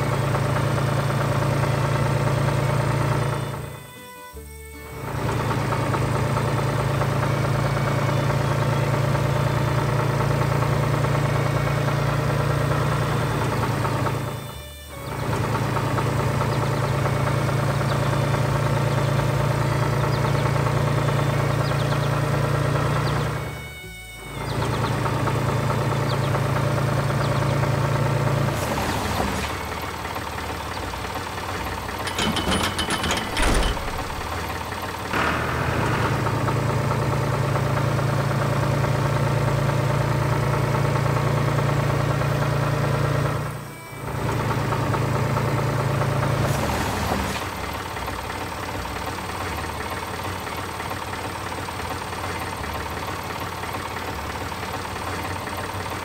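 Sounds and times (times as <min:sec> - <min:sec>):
tractor engine humming: 0:00.0 - 0:56.0
rattling clatter: 0:24.4 - 0:39.5.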